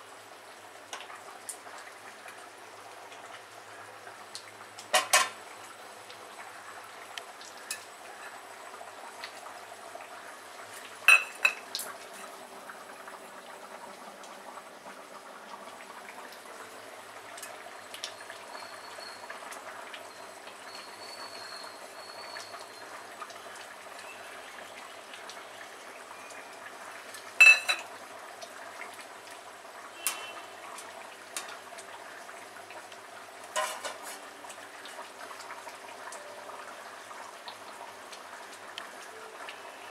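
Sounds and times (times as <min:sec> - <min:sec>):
metal utensil clinking on pan: 0:04.9 - 0:05.4, 0:11.1 - 0:11.6, 0:27.4 - 0:27.9, 0:33.5 - 0:34.2.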